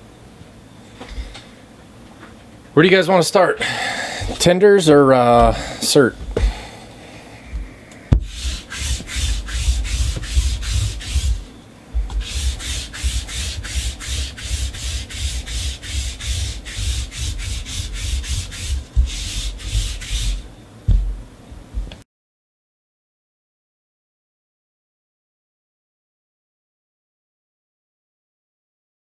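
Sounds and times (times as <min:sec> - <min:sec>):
rhythmic scraping strokes: 0:08.2 - 0:20.4
soft low thuds: 0:20.9 - 0:21.9.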